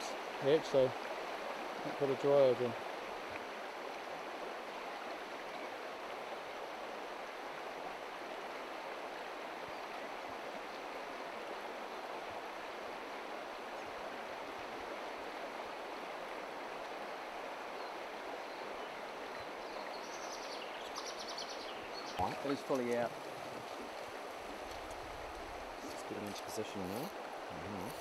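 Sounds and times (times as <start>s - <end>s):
river rushing over gravel: 0.0s - 4.0s, 21.8s - 28.0s.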